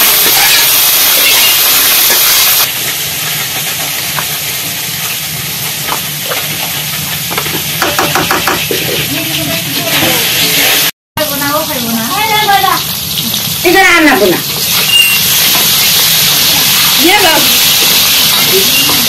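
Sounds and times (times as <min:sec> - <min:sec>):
fish sizzling in oil: 0:00.0 - 0:19.0
metal spoon clinking on bowl: 0:14.8 - 0:15.3.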